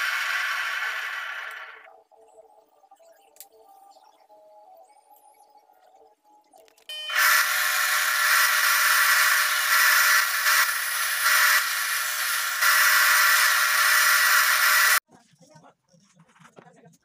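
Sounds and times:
sanding disc grinding wood: 0.0s - 1.8s, 7.1s - 15.0s
sander motor whine: 0.0s - 1.9s, 6.9s - 15.0s.

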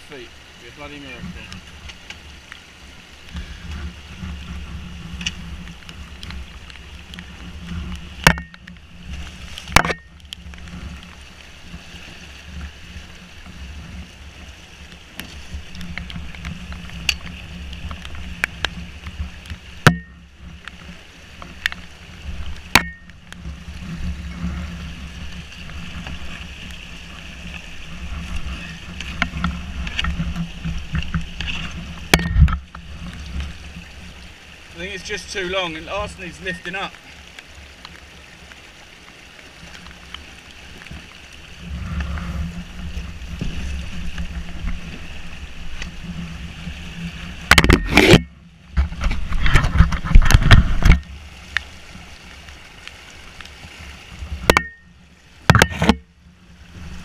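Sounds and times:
water rushing over rocks: 0.0s - 57.0s
canoe hull knocking on rocks: 7.2s - 10.7s, 18.0s - 20.6s, 21.4s - 26.4s, 27.5s - 33.8s, 47.2s - 51.1s, 54.3s - 56.1s.

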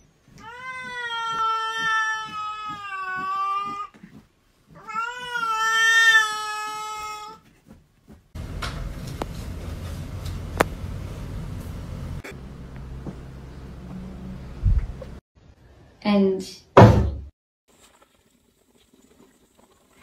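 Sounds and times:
cat meowing: 0.3s - 3.9s, 4.7s - 7.4s.

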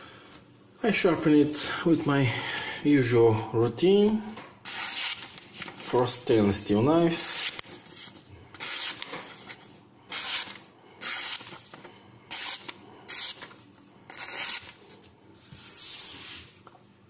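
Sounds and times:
knife slicing paper: 4.7s - 6.0s, 7.2s - 16.6s.

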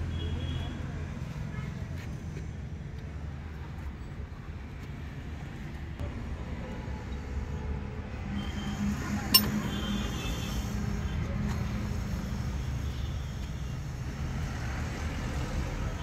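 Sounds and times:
hand tool clinking on metal: 9.3s - 9.6s.

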